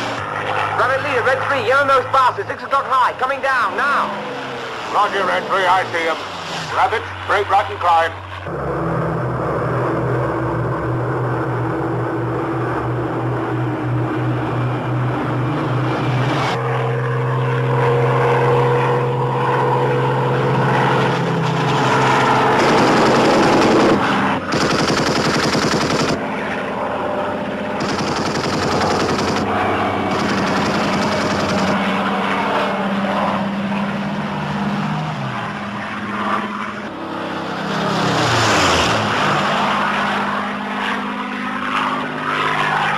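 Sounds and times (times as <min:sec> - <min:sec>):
piston aircraft engines droning: 0:00.0 - 0:42.9
machine gun bursts: 0:22.6 - 0:26.2, 0:27.8 - 0:29.5, 0:30.1 - 0:31.8.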